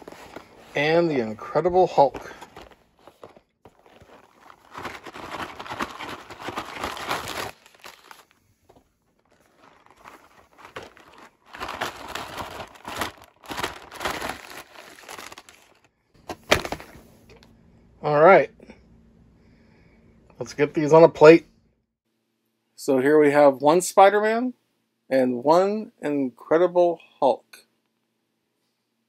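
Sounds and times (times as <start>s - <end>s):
cardboard boxes being opened: 0.0s - 0.8s, 1.8s - 16.8s
plastic packs crinkling: 0.0s - 16.9s.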